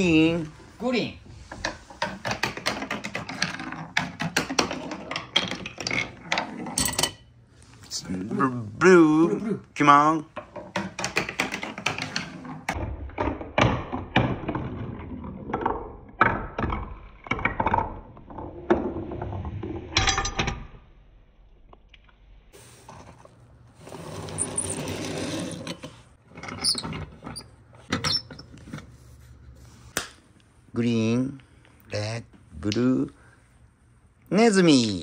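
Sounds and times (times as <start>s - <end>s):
wooden balls clattering down track: 1.6s - 6.9s, 10.4s - 20.4s.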